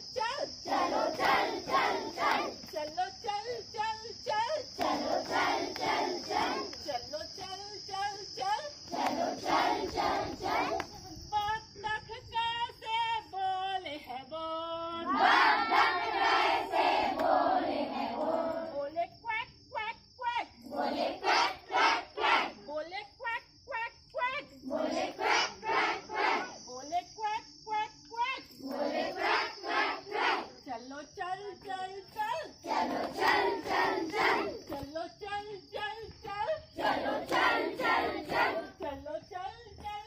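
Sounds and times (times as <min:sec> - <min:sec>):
children chanting and singing: 0:00.0 - 0:11.4, 0:14.8 - 0:18.9, 0:20.3 - 0:22.7, 0:23.8 - 0:26.7, 0:27.8 - 0:40.0
children singing together: 0:00.6 - 0:02.6, 0:04.8 - 0:06.7, 0:08.9 - 0:10.8, 0:36.8 - 0:38.8.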